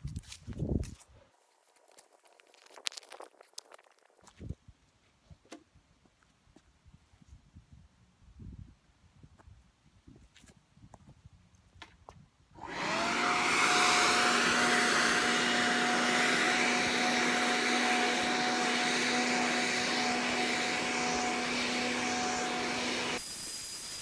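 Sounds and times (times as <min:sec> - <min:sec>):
leaf blower running: 0:12.6 - 0:24.0.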